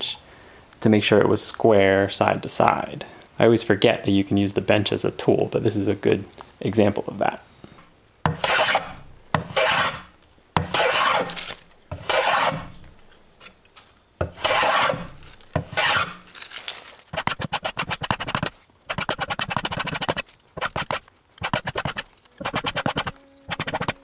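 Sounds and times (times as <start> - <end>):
hand plane rasping on wood: 8.3 - 12.8, 14.2 - 16.2, 17.2 - 24.0.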